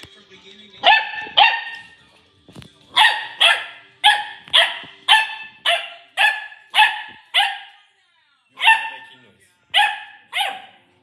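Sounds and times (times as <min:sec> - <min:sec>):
puppy barking: 0:00.8 - 0:01.9, 0:02.9 - 0:07.8, 0:08.6 - 0:09.1, 0:09.7 - 0:11.0.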